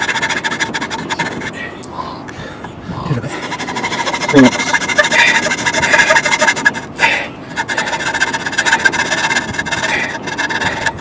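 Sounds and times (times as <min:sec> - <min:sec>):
hand saw cutting plywood: 0:00.0 - 0:01.5, 0:03.3 - 0:06.9, 0:07.5 - 0:11.0.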